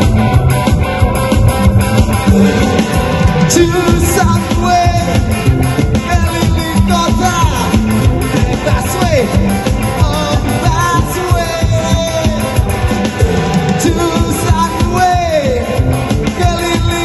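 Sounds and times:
drums: 0:00.0 - 0:17.0
electric guitars: 0:00.0 - 0:17.0
man singing into microphone: 0:03.5 - 0:05.4, 0:06.0 - 0:12.6, 0:13.8 - 0:17.0.

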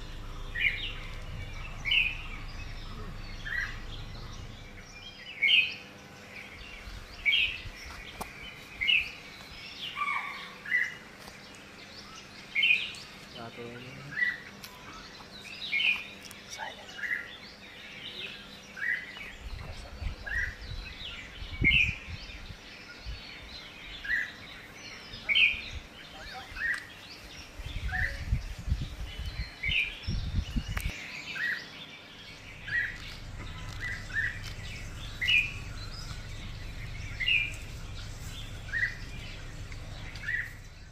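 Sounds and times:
low rumbling noise: 0:00.0 - 0:08.1, 0:32.2 - 0:40.9
bird chirping: 0:00.0 - 0:40.9.

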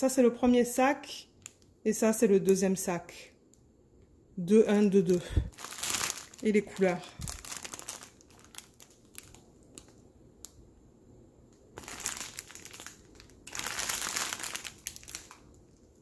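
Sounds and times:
plastic bags crinkling: 0:05.0 - 0:10.1, 0:11.8 - 0:16.0.

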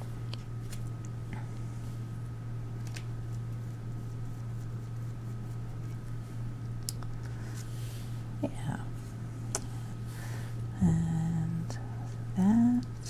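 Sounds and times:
steady low hum: 0:00.0 - 0:13.0
paintbrush brushing on paper: 0:03.3 - 0:06.5.

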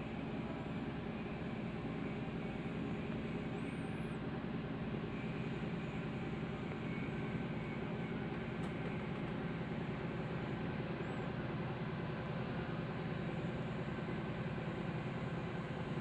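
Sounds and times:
ship machinery drone: 0:00.0 - 0:16.0.

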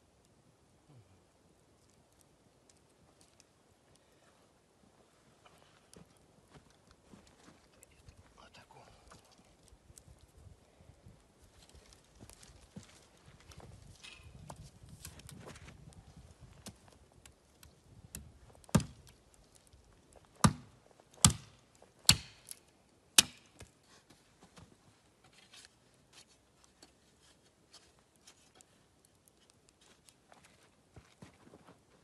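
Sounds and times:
hatchet chopping wood: 0:18.1 - 0:19.1, 0:20.4 - 0:22.6, 0:23.2 - 0:23.7.

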